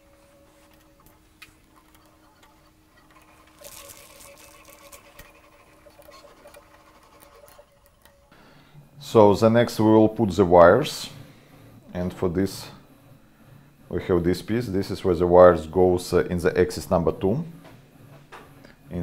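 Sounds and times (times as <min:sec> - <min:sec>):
low steady hum: 0:00.0 - 0:19.0
plastic parts clicking and rustling: 0:00.7 - 0:08.2.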